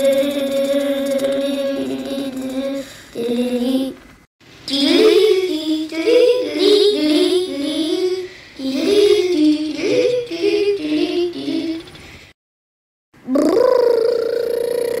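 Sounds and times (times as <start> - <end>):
high voice singing: 0.0 - 4.1, 4.7 - 12.0.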